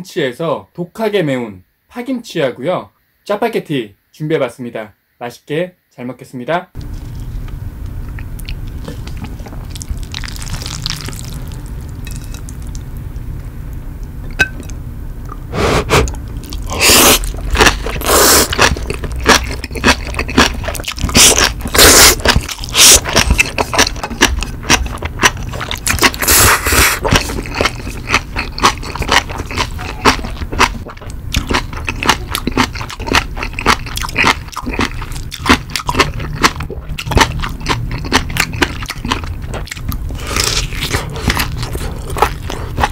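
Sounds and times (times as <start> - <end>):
wet chewing with crunches: 6.8 - 13.0, 14.6 - 42.9
noodle slurping: 15.5 - 24.6, 25.4 - 30.4.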